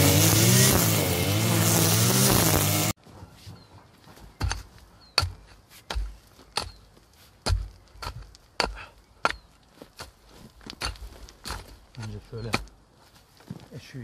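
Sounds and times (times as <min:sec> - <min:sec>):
hoe chopping into soil: 0:04.4 - 0:12.7.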